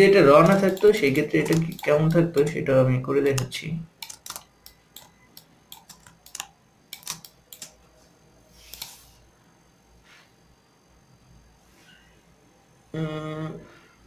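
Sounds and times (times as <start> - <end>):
mouse and keyboard clicks: 0.4 - 2.6, 3.3 - 7.8, 8.6 - 9.0.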